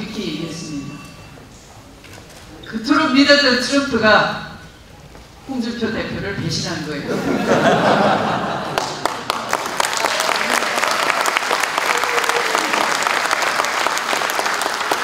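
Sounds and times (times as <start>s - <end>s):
audience applause: 8.2s - 15.0s.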